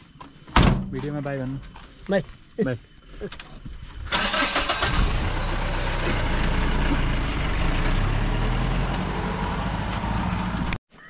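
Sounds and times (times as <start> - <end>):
vehicle engine running loud: 4.8 - 10.8.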